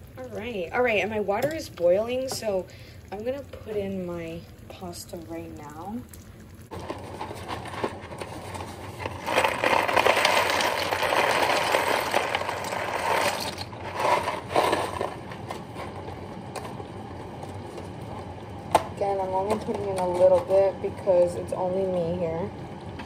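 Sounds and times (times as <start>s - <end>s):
dry pasta rattling into a pot: 6.7s - 15.7s
box shaking: 6.8s - 15.2s.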